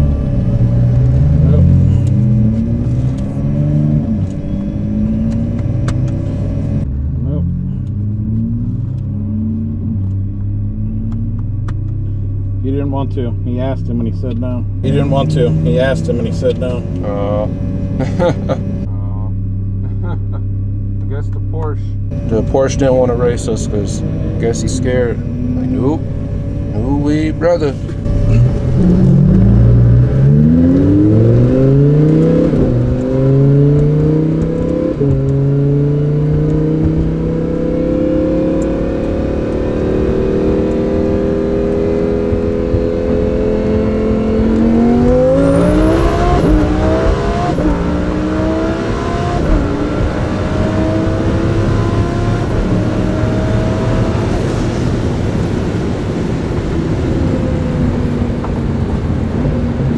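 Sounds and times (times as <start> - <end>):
car engine accelerating: 0.0 - 59.9.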